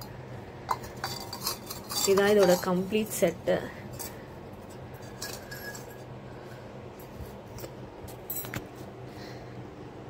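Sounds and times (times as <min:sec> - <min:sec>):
clay pots clicking and tapping: 0:00.0 - 0:03.3
low room hum: 0:00.0 - 0:10.0.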